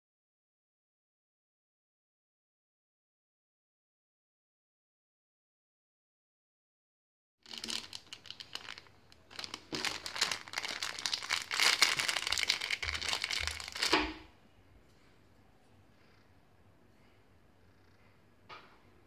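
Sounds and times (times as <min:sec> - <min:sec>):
plastic bag crinkling: 0:07.5 - 0:14.2.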